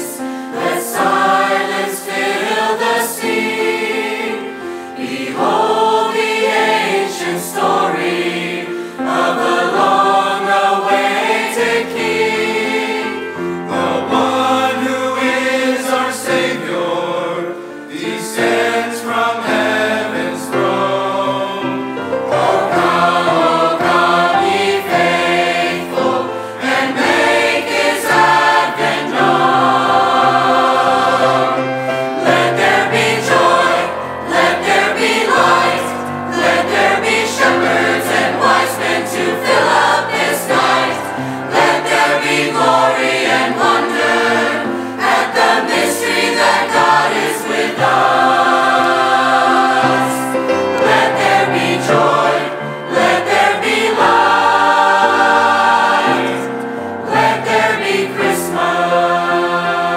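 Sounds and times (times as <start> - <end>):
mixed choir singing: 0.0 - 59.9.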